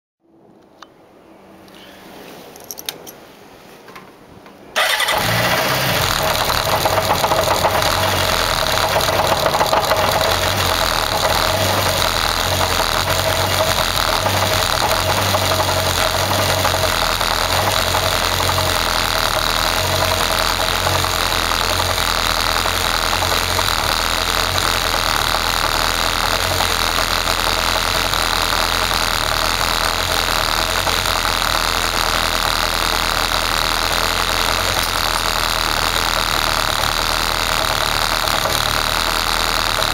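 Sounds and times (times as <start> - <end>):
motorcycle engine starting and idling: 4.8 - 39.9.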